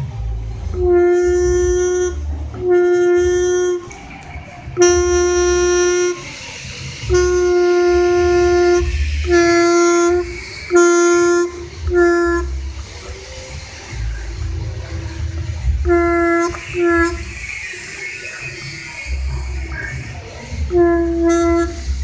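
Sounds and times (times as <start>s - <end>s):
reed valve blown by mouth: 0.3s - 22.0s.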